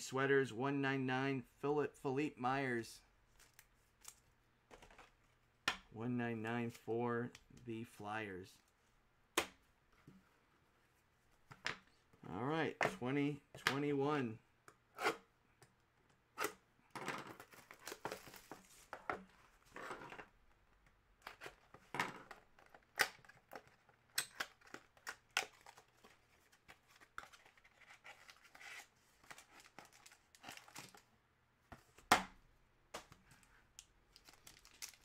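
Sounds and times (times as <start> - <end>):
plastic wrap tearing and crinkling: 27.9 - 31.0, 34.1 - 35.0.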